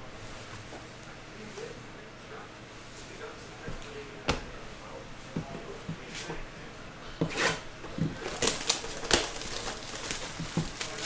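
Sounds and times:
foil wrapper crinkling: 8.0s - 11.0s.

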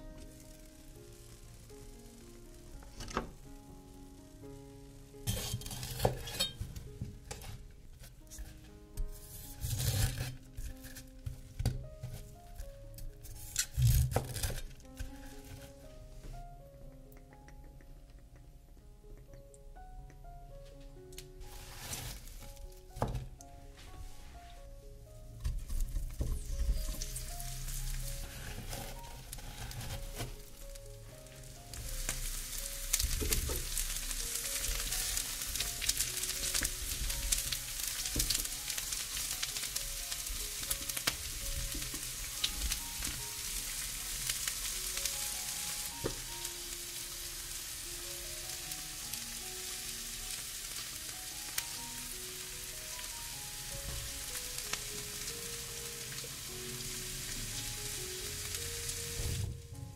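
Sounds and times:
soft melodic background music: 0.0s - 59.9s
food sizzling in hot oil: 0.2s - 6.6s, 21.4s - 23.1s, 26.1s - 59.8s.

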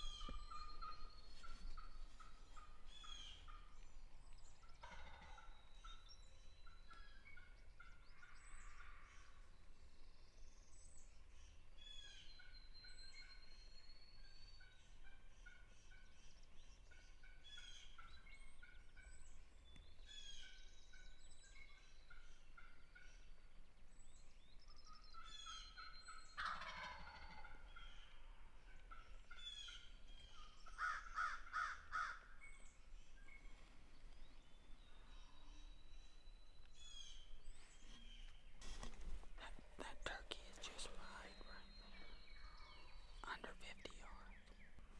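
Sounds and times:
songbirds chirping: 0.0s - 44.9s
turkey gobbling: 4.7s - 5.5s, 25.2s - 29.9s.

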